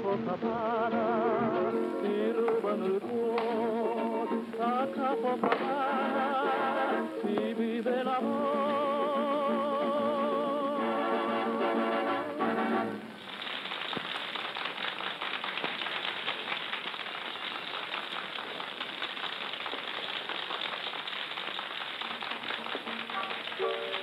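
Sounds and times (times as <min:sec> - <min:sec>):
song: 0:00.0 - 0:13.1
record surface crackle: 0:19.6 - 0:24.0.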